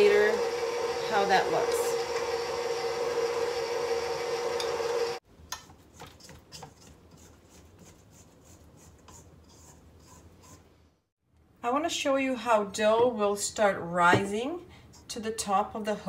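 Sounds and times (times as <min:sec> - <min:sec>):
stand mixer motor hum: 0:00.0 - 0:05.2
spatula scraping metal bowl: 0:05.5 - 0:10.7.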